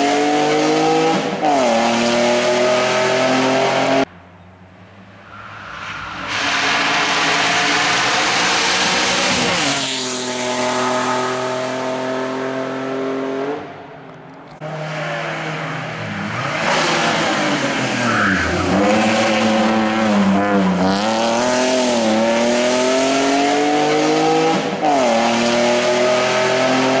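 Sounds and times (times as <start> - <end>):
race car engine revving through gears: 0.0 - 4.1, 6.3 - 13.7, 14.6 - 27.0.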